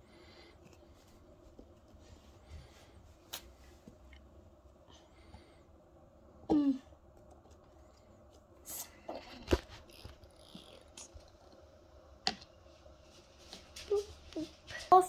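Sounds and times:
soft handling noises: 0.0s - 5.5s.

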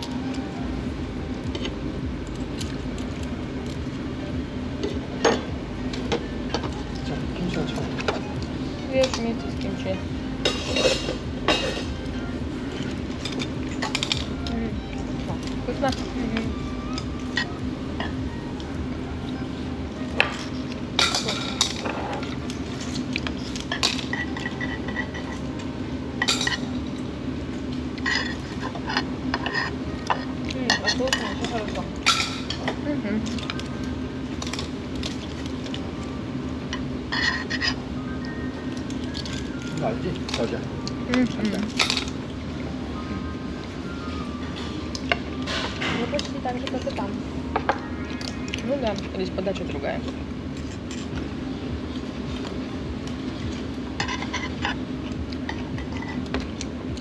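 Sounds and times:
steady background hum: 0.0s - 57.0s
tableware clinking: 5.2s - 8.2s, 10.4s - 12.0s, 20.2s - 25.4s, 26.2s - 27.1s, 28.0s - 33.6s, 41.2s - 42.2s, 54.0s - 54.8s.

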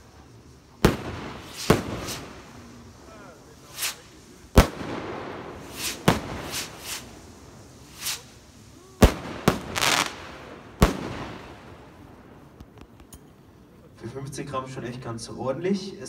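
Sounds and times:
rockets launching with hissing whooshes: 0.0s - 13.7s
sharp bangs of bursting rockets: 0.8s - 8.4s, 9.0s - 12.5s.

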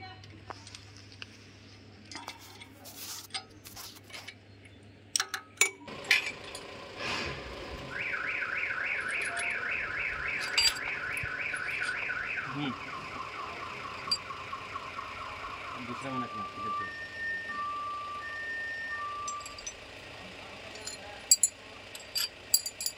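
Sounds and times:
metal tools clinking: 5.2s - 6.7s, 8.8s - 12.2s, 14.0s - 14.3s, 19.0s - 19.8s, 20.6s - 22.9s
engine running: 5.8s - 22.9s
electronic warning alarm chirps: 7.8s - 19.9s.

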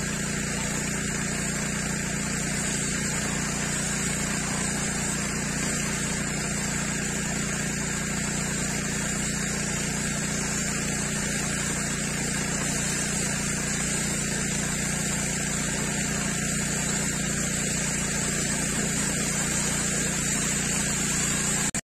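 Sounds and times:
pressure washer pump humming: 0.0s - 21.8s
water jet hissing on paving: 0.0s - 21.8s.

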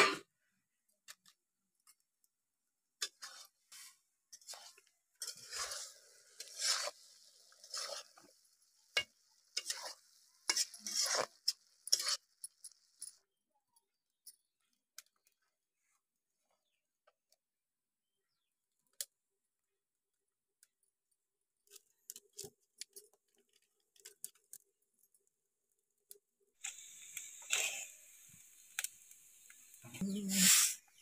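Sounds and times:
fire hissing: 3.1s - 12.3s, 26.6s - 31.0s.

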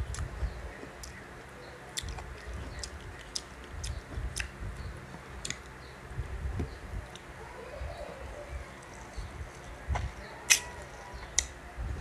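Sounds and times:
chewing: 1.9s - 5.7s
wet mouth clicks and smacks: 2.0s - 4.6s.

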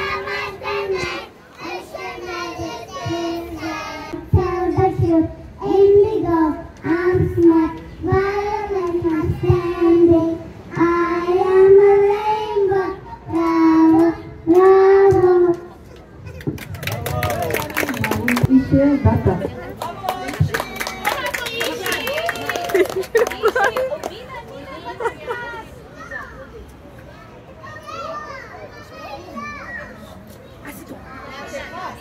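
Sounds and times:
children singing together: 0.0s - 15.6s.

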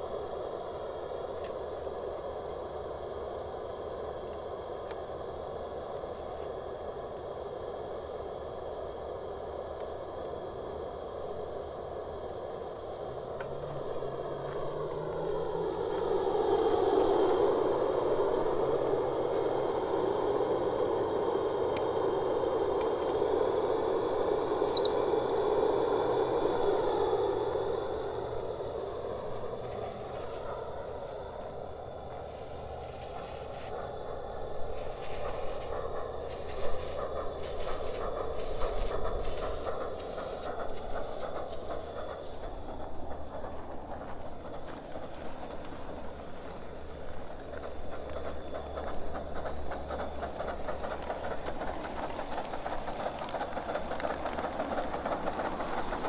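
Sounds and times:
steam locomotive hissing and rattling: 0.0s - 56.0s
brief high squeak: 24.7s - 25.0s.

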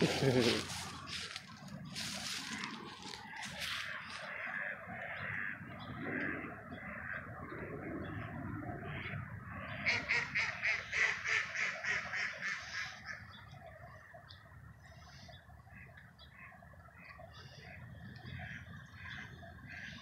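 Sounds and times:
duck quacking: 2.3s - 7.2s, 8.9s - 13.2s.

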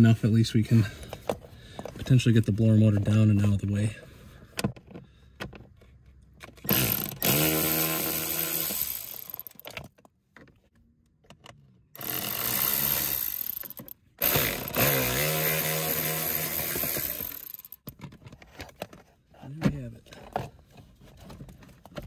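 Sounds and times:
power driver motor whine: 12.0s - 17.6s.

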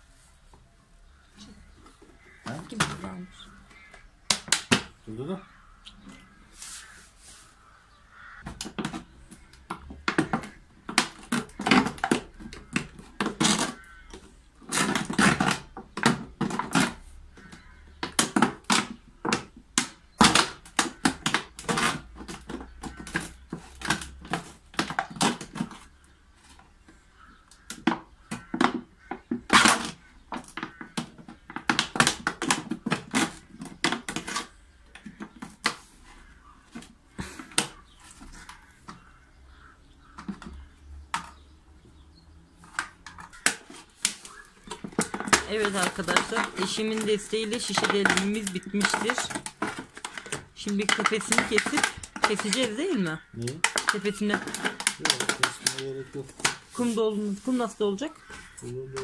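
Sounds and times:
plastic jug crackling: 1.0s - 7.4s, 8.1s - 59.0s.

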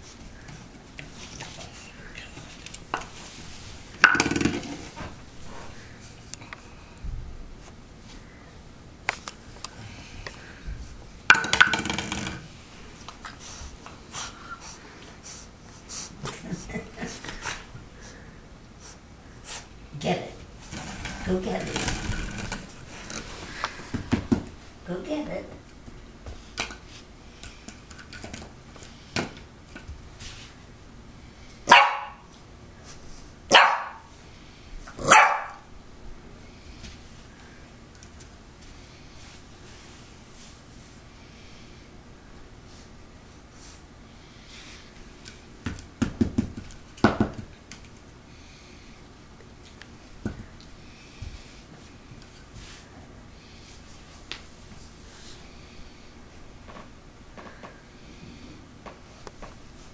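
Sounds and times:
plastic bottle knocking on floor: 4.0s - 4.8s
puppy barking: 31.7s - 32.2s, 33.5s - 34.1s, 35.0s - 35.6s.

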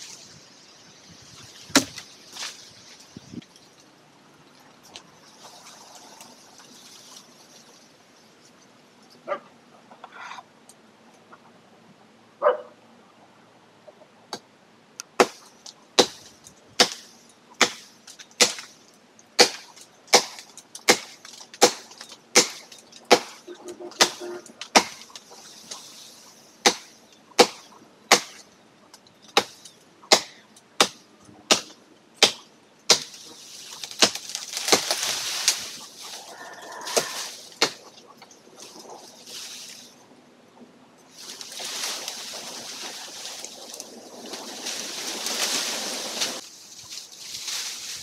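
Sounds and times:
leaves rustling: 0.0s - 11.4s, 15.0s - 48.0s
machete chopping branch: 1.7s - 2.6s, 15.1s - 18.8s, 19.4s - 25.9s, 26.6s - 28.5s, 29.3s - 36.2s, 36.9s - 38.0s.

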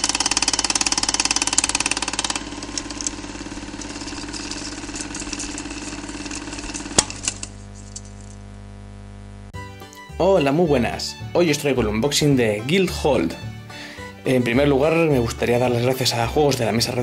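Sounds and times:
steady low hum: 0.9s - 9.6s.

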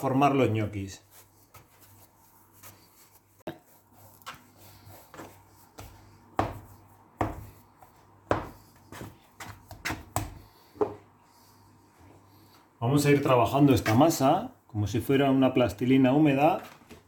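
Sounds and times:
hands rubbing and patting dough: 0.4s - 12.0s
dough scraper knocking on wooden board: 5.1s - 7.6s, 8.2s - 11.0s.

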